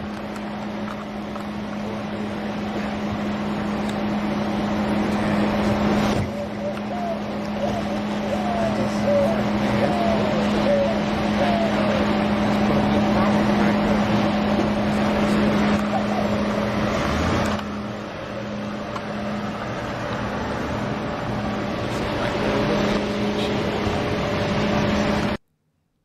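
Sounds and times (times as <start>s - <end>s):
traffic rumble: 0.0s - 25.4s
wind: 0.0s - 25.4s
low hum: 0.0s - 26.0s.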